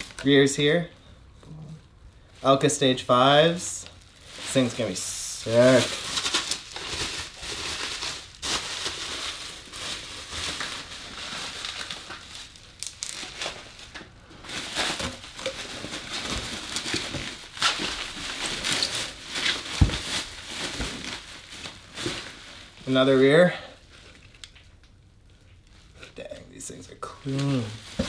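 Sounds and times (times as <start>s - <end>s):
bubble wrap and plastic crinkling: 0.0s - 0.9s, 2.1s - 28.0s.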